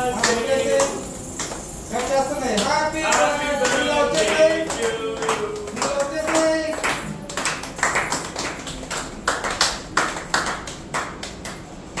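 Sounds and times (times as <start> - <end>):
people clapping: 0.0 - 12.0.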